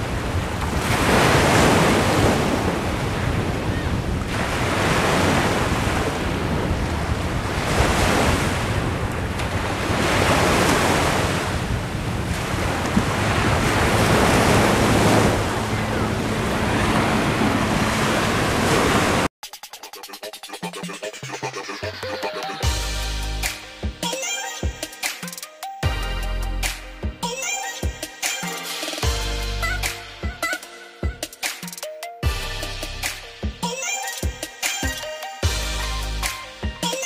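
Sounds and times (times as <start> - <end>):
storm wind gusting on microphone: 0.0 - 19.3
surf on a beach: 0.0 - 19.3.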